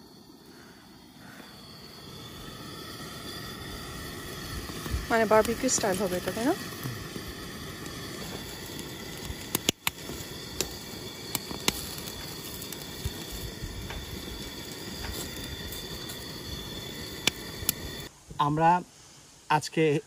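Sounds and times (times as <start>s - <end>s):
corn kernels crackling and popping: 0.0s - 18.1s
gas stove burner hissing: 0.0s - 18.1s.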